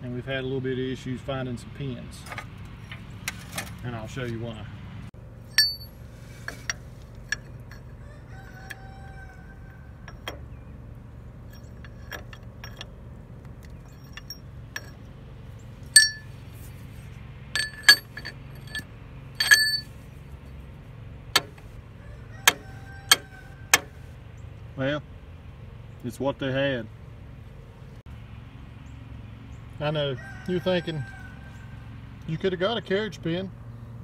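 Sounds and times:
steady low hum: 4.0s - 22.0s
metal-on-metal clinks: 5.4s - 8.9s, 11.4s - 13.0s, 13.7s - 15.1s, 15.9s - 16.3s, 17.6s - 19.9s.

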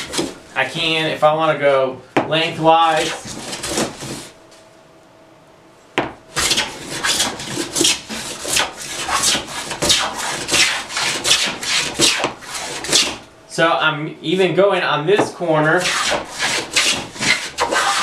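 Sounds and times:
hand plane shaving wood: 6.4s - 13.2s, 15.8s - 18.0s.

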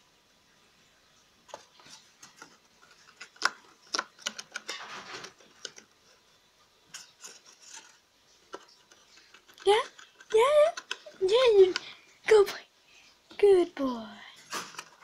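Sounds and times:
paper rustling: 1.5s - 11.9s, 14.4s - 15.0s
rabbit gnawing cardboard: 1.5s - 11.9s.

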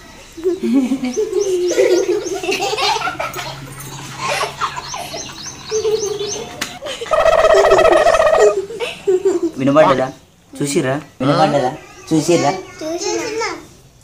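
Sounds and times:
children and man laughing: 0.4s - 9.8s.

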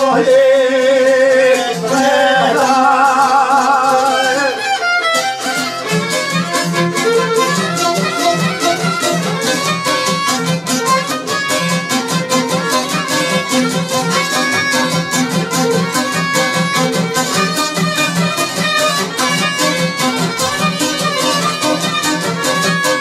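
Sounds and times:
voices singing: 0.0s - 4.7s
plucked lute strumming: 0.0s - 23.0s
violins playing folk music: 0.0s - 23.0s.

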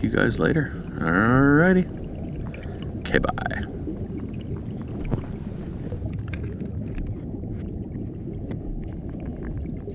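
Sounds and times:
low underwater rumble: 0.0s - 9.9s
faint clicks and ticks: 1.8s - 9.9s.

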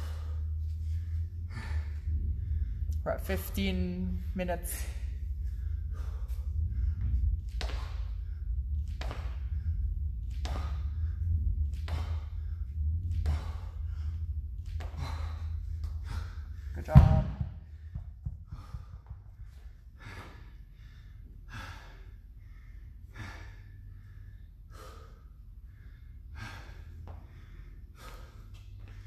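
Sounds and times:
dumbbells thudding on rubber floor: 16.8s - 19.1s.

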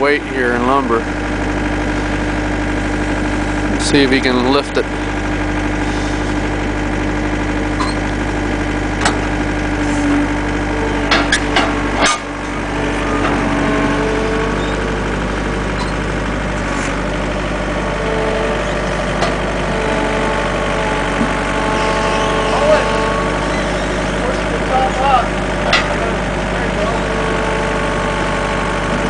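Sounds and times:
diesel engine running: 0.0s - 29.0s
sharp knocks: 11.0s - 12.3s.

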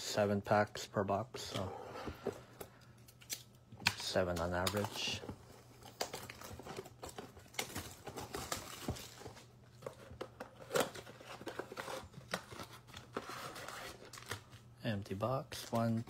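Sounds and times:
packaging crinkling and tearing: 3.0s - 14.8s, 15.4s - 16.0s.

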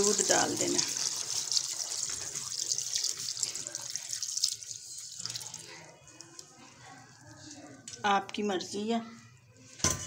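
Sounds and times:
milk pouring and splashing: 0.0s - 7.6s.

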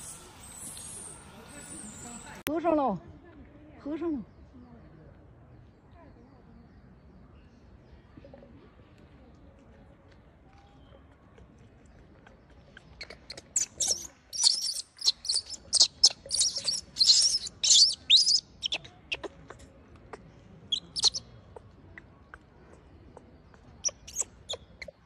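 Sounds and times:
young monkey screaming: 13.3s - 18.8s.

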